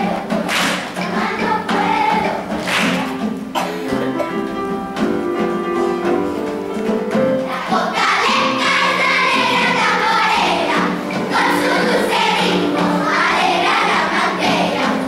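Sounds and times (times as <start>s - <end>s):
children's choir singing: 0.0s - 15.0s
piano accompaniment: 0.0s - 15.0s.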